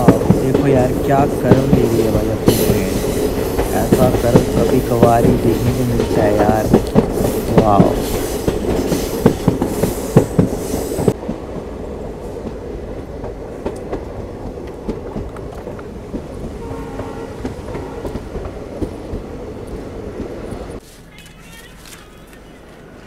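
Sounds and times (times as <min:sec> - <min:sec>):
train wheels clattering over joints: 0:00.0 - 0:11.4
train rolling rumble: 0:00.0 - 0:21.5.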